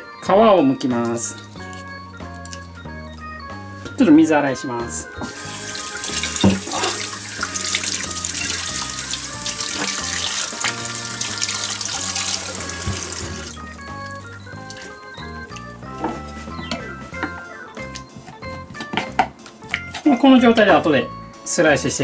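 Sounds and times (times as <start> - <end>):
background music: 0.0 - 22.0
tap water splashing in sink: 5.2 - 13.6.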